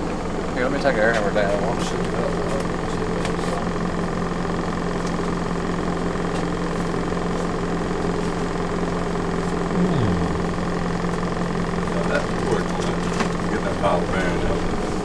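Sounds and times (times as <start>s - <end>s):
mechanical drone: 9.6s - 15.0s.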